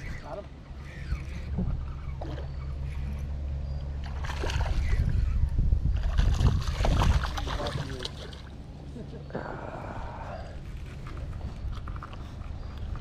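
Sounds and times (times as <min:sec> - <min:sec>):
steady low hum: 0:00.0 - 0:13.0
fish splashing at water surface: 0:06.0 - 0:08.5.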